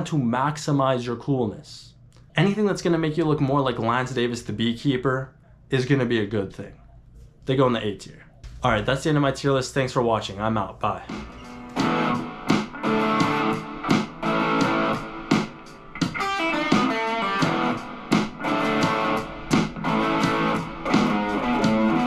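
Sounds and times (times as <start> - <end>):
electric guitar chord stabs: 11.2 - 22.0.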